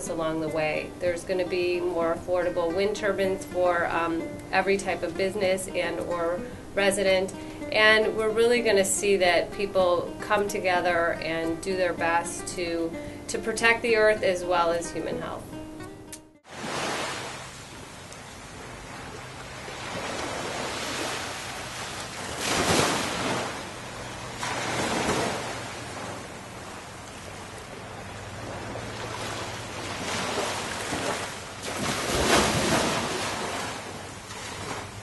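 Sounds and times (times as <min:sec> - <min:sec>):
ocean surf washing in: 0:16.5 - 0:35.0.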